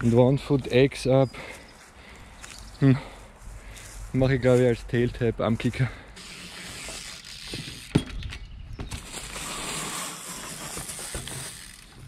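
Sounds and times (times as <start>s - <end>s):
bicycle rolling over dry leaves: 6.2s - 7.9s, 8.9s - 12.0s.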